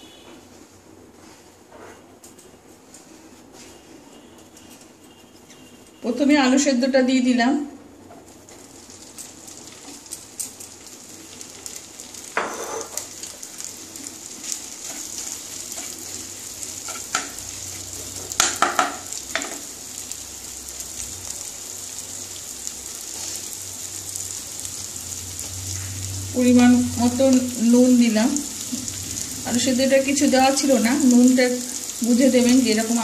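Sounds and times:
potato sizzling in oil: 8.0s - 33.0s
spatula scraping a pan: 12.4s - 13.0s.

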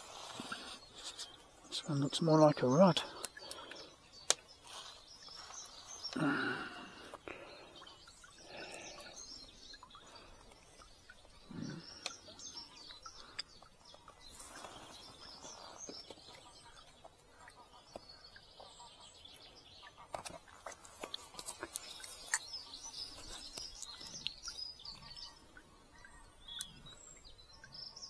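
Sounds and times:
small birds chirping: 0.0s - 28.0s
sharp clicks: 3.2s - 4.5s.

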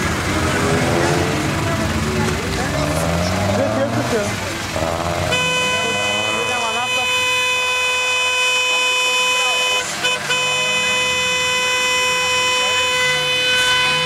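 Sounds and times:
slow traffic noise: 0.0s - 14.0s
car horn blaring: 5.2s - 14.0s.

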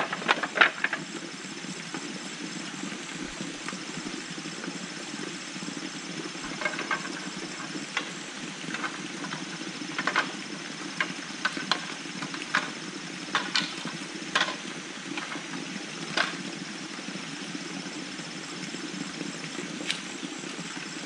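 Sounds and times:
bamboo knocking and clacking: 8.7s - 10.3s, 11.0s - 14.6s.

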